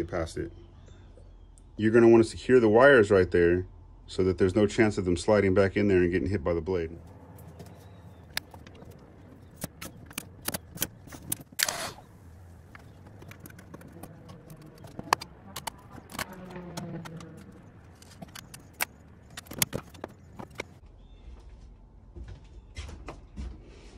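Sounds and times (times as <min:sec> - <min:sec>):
clicks and knocks of handling: 0:07.2 - 0:11.7, 0:12.7 - 0:20.8.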